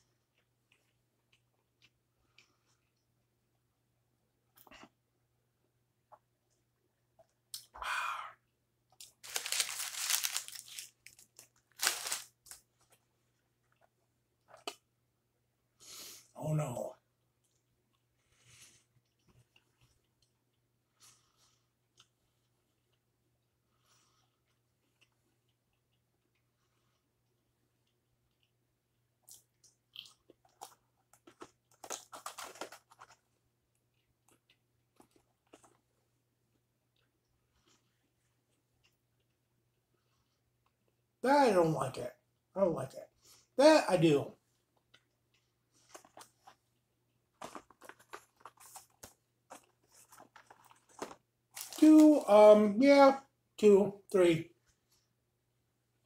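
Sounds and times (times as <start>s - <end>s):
paper wrapper crinkling: 9.0s - 12.6s, 31.7s - 33.2s, 47.4s - 52.3s
crunching bites and chewing: 9.0s - 13.0s, 29.2s - 33.2s
cardboard box crackling: 9.2s - 11.2s, 11.8s - 12.2s.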